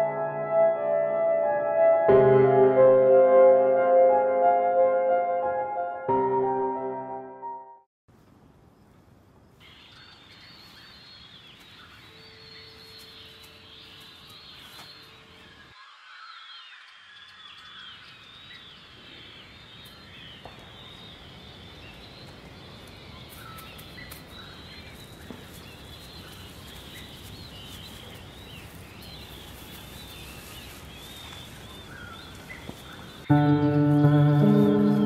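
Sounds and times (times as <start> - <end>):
outdoor background hiss: 8.1 - 35.0
birds chirping and whistling: 23.3 - 35.0.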